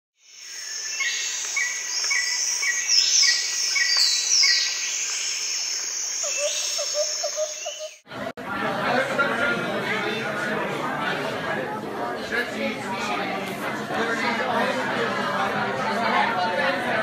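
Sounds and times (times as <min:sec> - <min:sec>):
bird chirps: 0:00.2 - 0:08.0
insect drone: 0:00.2 - 0:08.0
falling whistles: 0:00.5 - 0:08.0.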